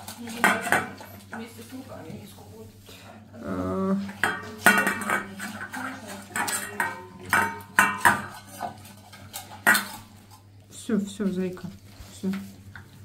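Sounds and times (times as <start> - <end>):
steel bowl clattering on floor: 0.0 - 2.3, 4.0 - 10.4.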